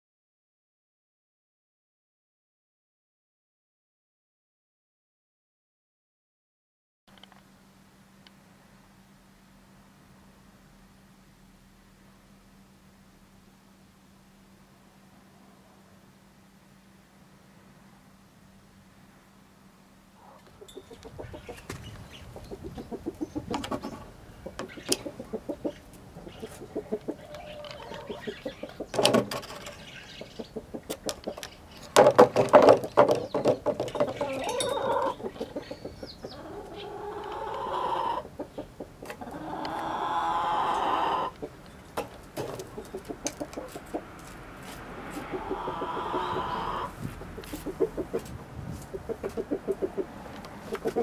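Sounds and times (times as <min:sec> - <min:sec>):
hens clucking: 0:20.2 - 0:51.0
hens pecking on wooden box: 0:21.0 - 0:25.6, 0:30.8 - 0:35.4.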